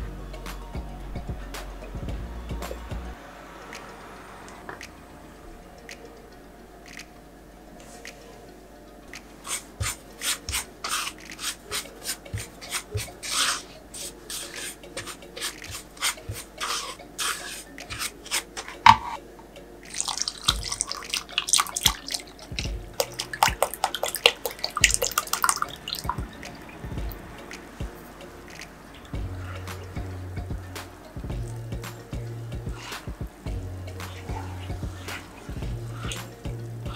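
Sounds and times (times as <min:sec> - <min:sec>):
spatula scraping and tapping a pot: 0:09.4 - 0:19.2, 0:19.9 - 0:26.7, 0:33.9 - 0:36.9
liquid splashing and sloshing: 0:19.9 - 0:27.3.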